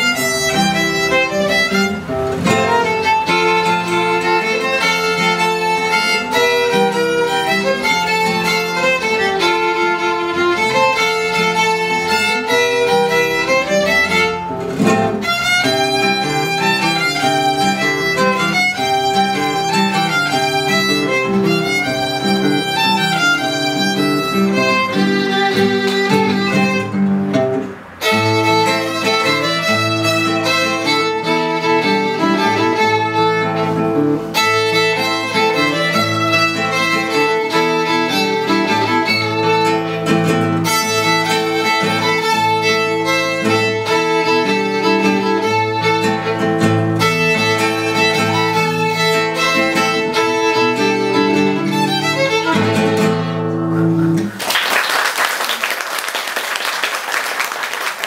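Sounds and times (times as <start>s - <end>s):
violin and guitar duet: 0.0s - 54.4s
audience applause: 54.2s - 58.0s.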